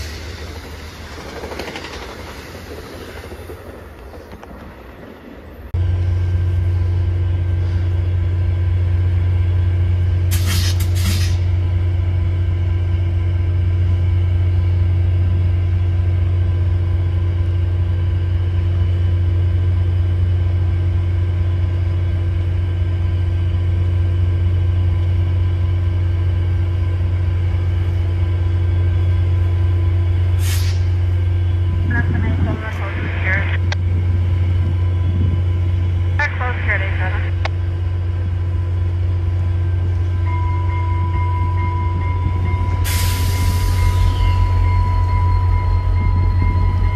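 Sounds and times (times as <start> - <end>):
diesel locomotive engine running: 0.0 - 46.9
short hiss: 10.3 - 11.5, 30.4 - 31.0.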